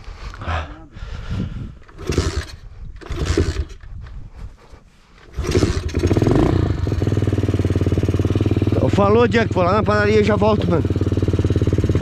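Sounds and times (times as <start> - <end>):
small engine revving: 1.9 - 3.9, 5.3 - 12.0.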